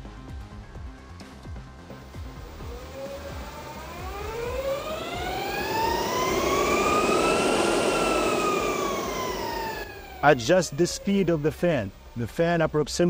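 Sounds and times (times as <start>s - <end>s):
cooling fan whine: 1.4s - 12.7s
rushing air: 1.9s - 11.1s.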